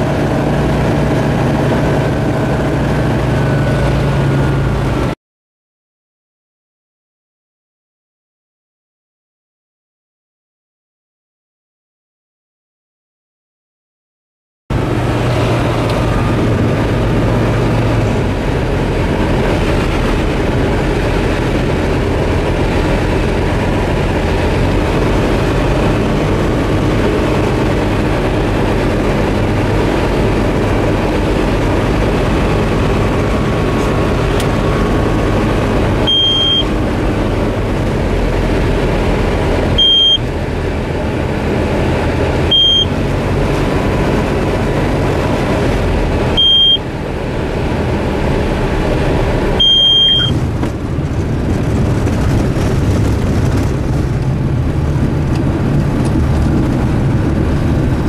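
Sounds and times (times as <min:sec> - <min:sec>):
aircraft engine and propeller: 0:00.0 - 0:05.2, 0:14.7 - 0:58.0
short high-pitched beeps: 0:36.1 - 0:36.7, 0:39.8 - 0:40.2, 0:42.5 - 0:42.9, 0:46.4 - 0:46.8, 0:49.6 - 0:50.4.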